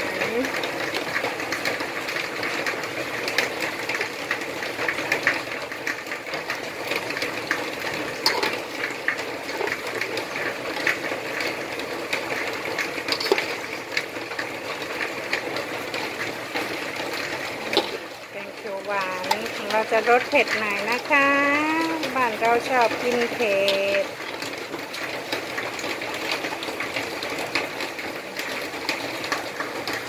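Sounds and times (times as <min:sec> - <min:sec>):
paste sizzling in a pot: 0:00.8 - 0:24.2
metal spoon scraping a pot: 0:08.2 - 0:08.6, 0:13.1 - 0:13.7.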